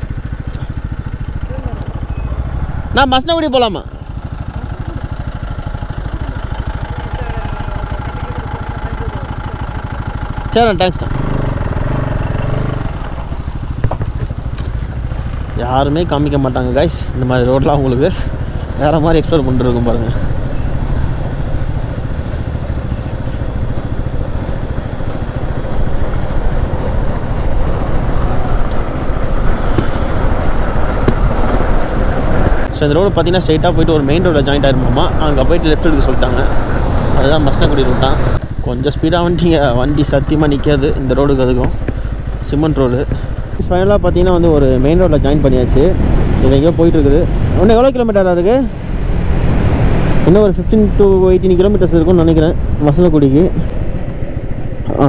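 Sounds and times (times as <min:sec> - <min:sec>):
motorcycle engine idling: 0:00.0 - 0:31.4, 0:32.8 - 0:45.0.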